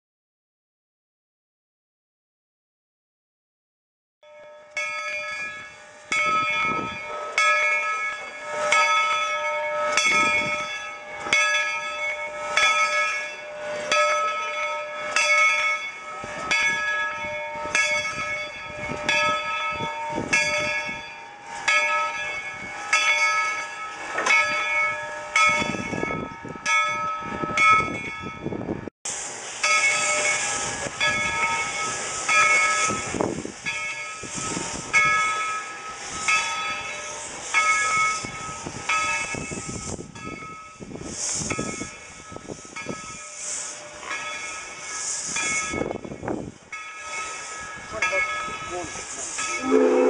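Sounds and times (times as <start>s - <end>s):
locomotive bell ringing: 4.2s - 28.9s, 29.6s - 50.0s.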